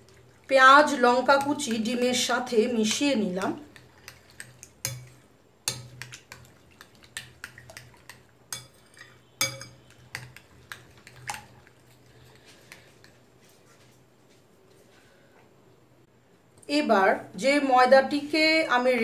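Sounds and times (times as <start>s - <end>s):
utensil clinking in glass bowl: 3.4s - 11.5s.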